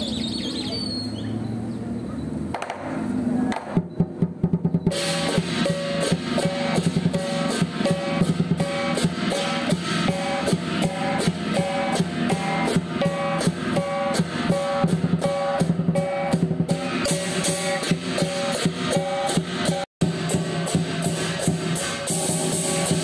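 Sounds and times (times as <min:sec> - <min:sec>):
large drum beating: 0:03.7 - 0:23.0
crashing cymbals: 0:04.8 - 0:23.0
ringing gong: 0:04.9 - 0:23.0.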